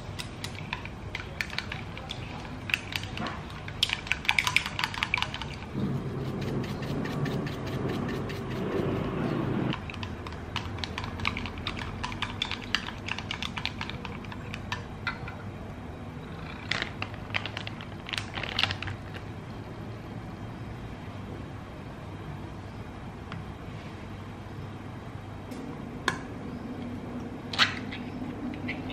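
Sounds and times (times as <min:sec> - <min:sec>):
pepper being shaken: 0:04.3 - 0:09.2.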